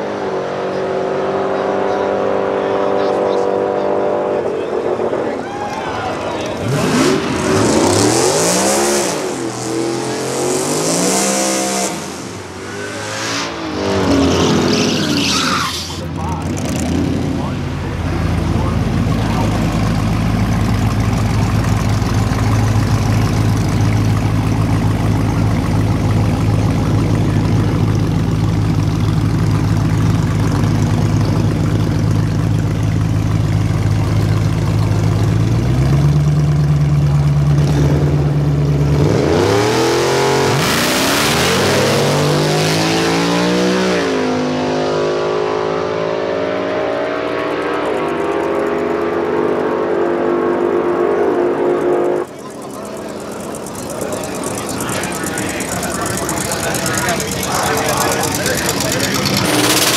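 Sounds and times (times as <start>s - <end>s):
car engine revving and accelerating: 0.0s - 5.3s, 6.4s - 59.9s.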